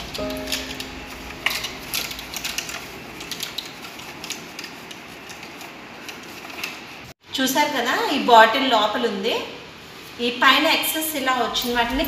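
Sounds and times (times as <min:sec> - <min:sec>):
paper sticks clicking and rattling: 0:00.0 - 0:07.0.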